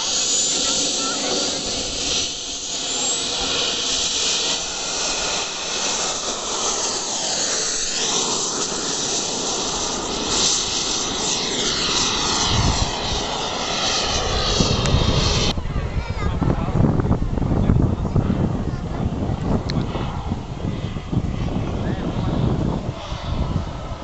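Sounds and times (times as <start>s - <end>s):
model jet engine hissing: 0.0s - 15.6s.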